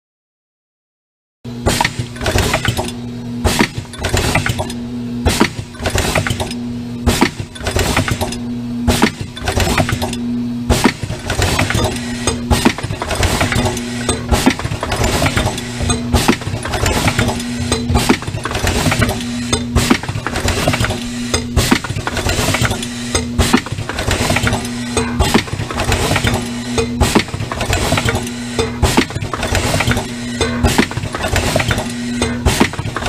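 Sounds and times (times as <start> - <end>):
machine hum and hiss: 1.5 - 33.0
filling machine clacking: 10.8 - 33.0.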